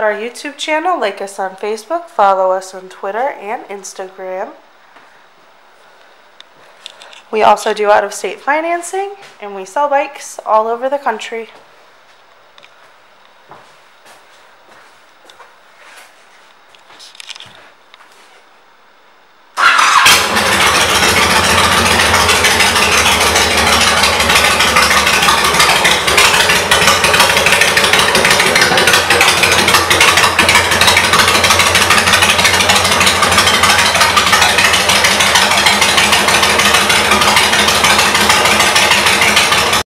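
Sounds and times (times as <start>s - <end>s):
motorcycle engine starting and idling: 19.6s - 39.9s.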